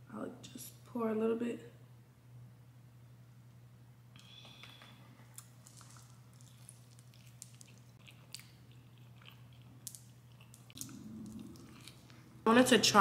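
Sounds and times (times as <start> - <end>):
faint low hum: 0.0 - 13.0
person chewing with crunches: 4.2 - 12.4.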